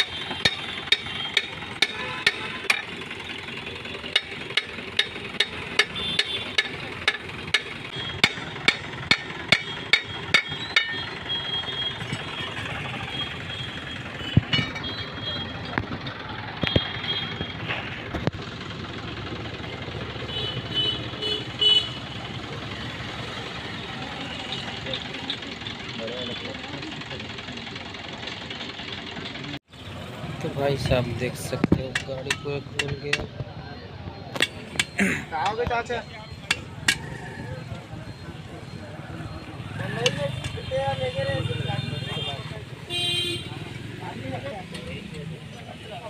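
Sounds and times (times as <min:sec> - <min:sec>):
hammer striking metal brake drum: 0:00.0 - 0:03.0, 0:04.1 - 0:11.2, 0:14.4 - 0:15.0, 0:31.7 - 0:33.3
metal knocks: 0:00.0 - 0:03.0, 0:04.1 - 0:11.0, 0:14.3 - 0:15.0, 0:31.5 - 0:33.4.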